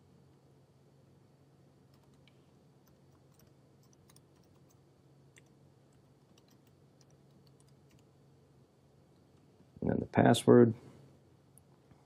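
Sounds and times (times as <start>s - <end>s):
low steady hum: 0.0s - 12.0s
keyboard typing: 1.9s - 5.6s, 6.2s - 8.1s.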